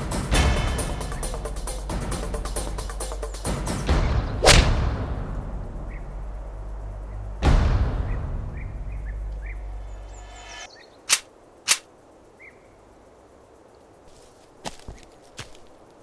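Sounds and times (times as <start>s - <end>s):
low music drone: 0.0s - 10.7s
birds chirping: 0.9s - 4.7s, 5.8s - 16.0s
loud boom: 4.0s - 6.3s
pistol shots: 11.1s - 11.8s.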